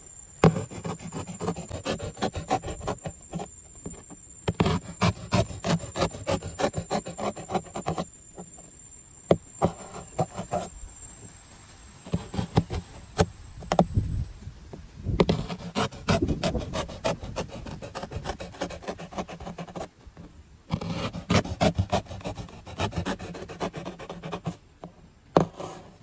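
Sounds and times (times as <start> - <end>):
knife sawing through cardboard: 0.4 - 3.5, 4.5 - 8.1, 9.6 - 10.7, 12.1 - 13.3, 15.2 - 19.9, 20.7 - 24.6, 25.4 - 26.0.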